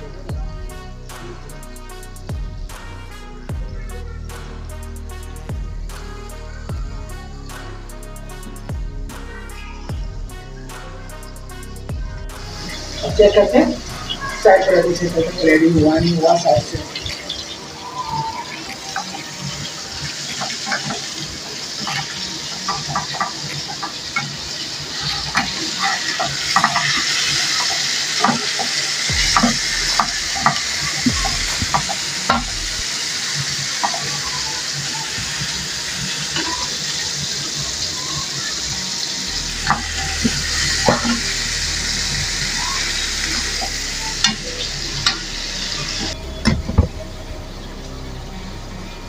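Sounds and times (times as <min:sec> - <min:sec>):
meat sizzling in a pan: 0:12.3 - 0:46.2.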